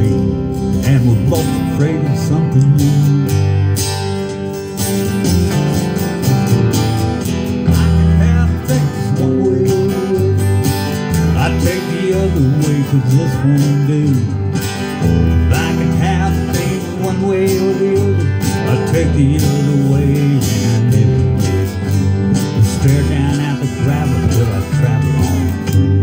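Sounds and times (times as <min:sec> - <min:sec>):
acoustic guitar strumming: 0:00.0 - 0:26.0.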